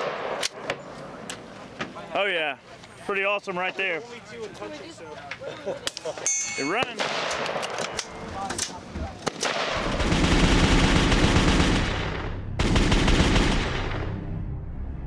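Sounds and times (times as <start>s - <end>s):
gunshots: 0.0s - 0.7s, 6.9s - 8.0s, 9.2s - 14.1s
rapid automatic gunfire: 9.3s - 14.1s.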